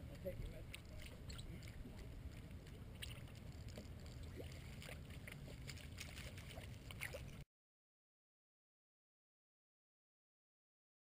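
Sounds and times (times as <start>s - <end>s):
water lapping against boat hull: 0.0s - 7.4s.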